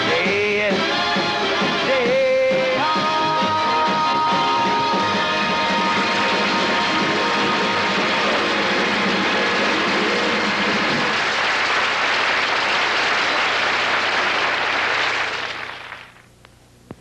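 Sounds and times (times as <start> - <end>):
audience applauding: 6.0 - 16.2.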